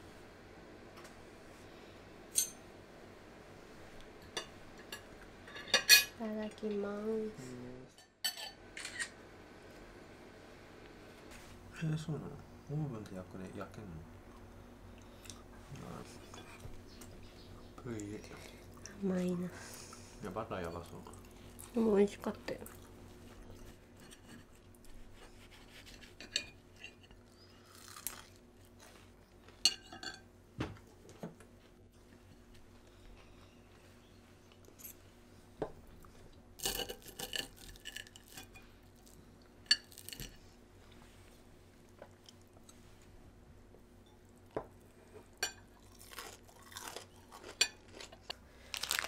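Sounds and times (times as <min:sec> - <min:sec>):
cutlery clinking on plate: 0:08.2 - 0:09.1.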